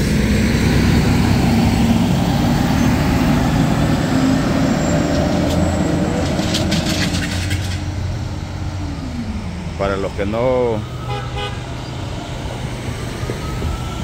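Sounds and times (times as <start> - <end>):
garbage truck engine rumbling: 0.0 - 11.0.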